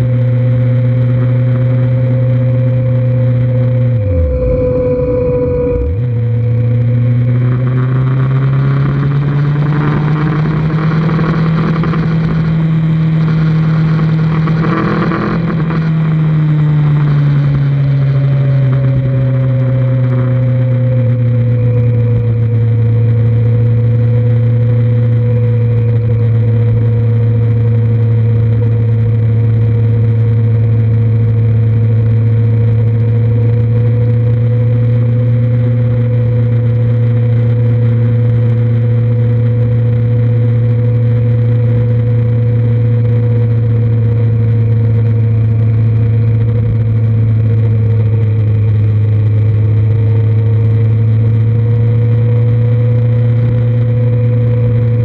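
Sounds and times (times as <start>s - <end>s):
motorcycle engine running: 0.0s - 55.0s
rushing wind noise: 3.8s - 19.4s.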